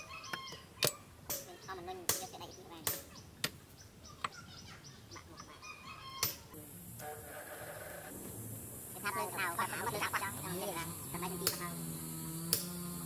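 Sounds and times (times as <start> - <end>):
hammer striking chisel on hot steel: 0.8 - 3.1, 12.5 - 12.7
poultry clucking: 4.1 - 8.1, 9.3 - 11.5.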